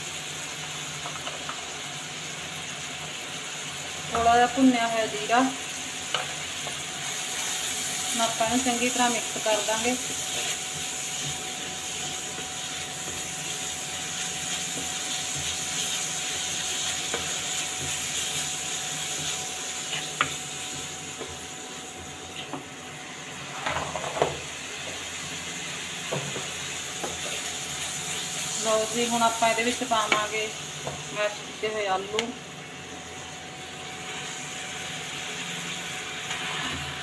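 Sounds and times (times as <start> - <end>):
onions sizzling in oil: 0.0 - 37.0
spatula scraping a pan: 8.9 - 13.3.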